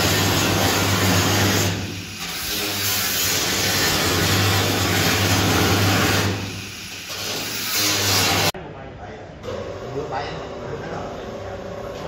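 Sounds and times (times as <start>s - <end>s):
angle grinder cutting sheet steel: 0.0s - 8.5s.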